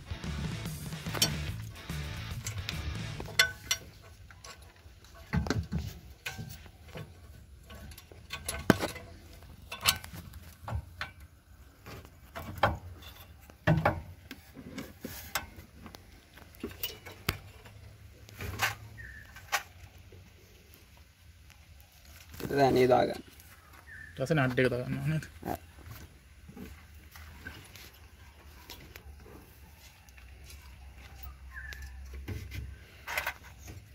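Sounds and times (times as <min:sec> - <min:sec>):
metal exhaust pipe clinking: 0:00.7 - 0:11.3.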